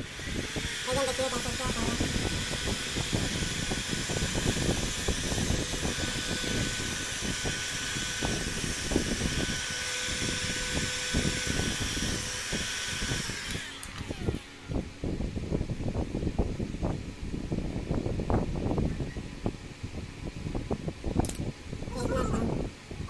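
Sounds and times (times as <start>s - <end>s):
heat gun blowing hot air: 0.0s - 14.8s.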